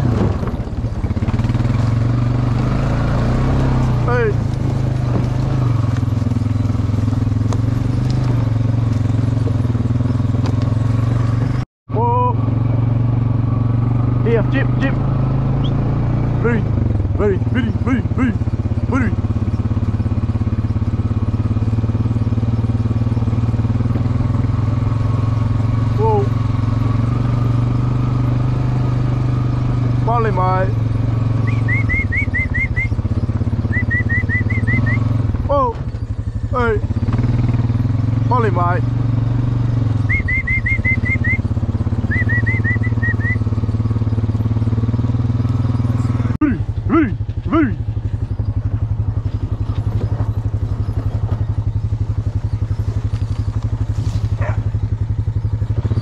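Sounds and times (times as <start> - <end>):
quad bike engine running: 0.0 - 56.0
quick high chirps: 31.4 - 35.1, 40.0 - 43.6.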